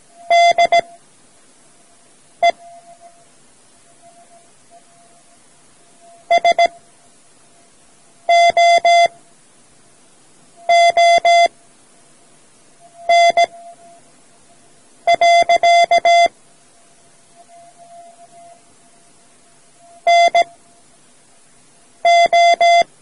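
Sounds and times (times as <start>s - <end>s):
morse code beeps: 0.2s - 1.0s, 2.4s - 3.2s, 6.1s - 6.8s, 8.3s - 9.1s, 10.6s - 11.5s, 12.9s - 14.0s, 15.1s - 16.4s, 17.4s - 18.6s, 19.8s - 20.6s, 22.0s - 22.9s.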